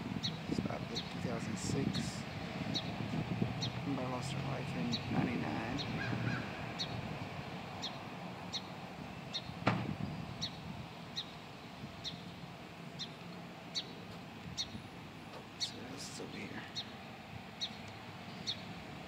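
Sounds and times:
low outdoor hum: 0:00.0 - 0:19.0
bird chirping: 0:00.2 - 0:03.0, 0:03.6 - 0:04.2, 0:04.8 - 0:07.1, 0:07.7 - 0:14.9, 0:15.5 - 0:18.8.

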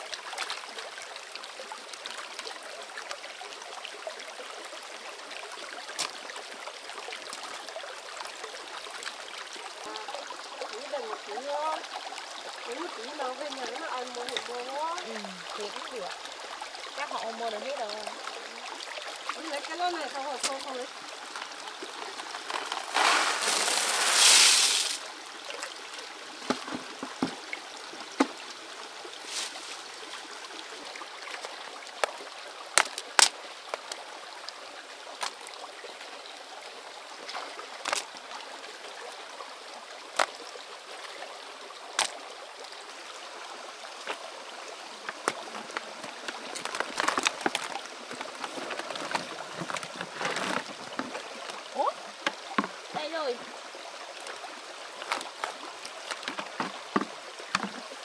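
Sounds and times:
water running and trickling: 0:00.0 - 0:58.0
water splash: 0:18.9 - 0:25.7.

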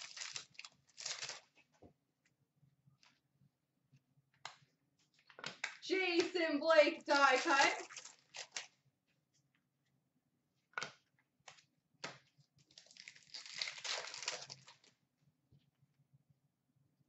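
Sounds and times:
card pack wrapper tearing: 0:00.0 - 0:01.5, 0:07.2 - 0:08.7, 0:12.7 - 0:14.9.

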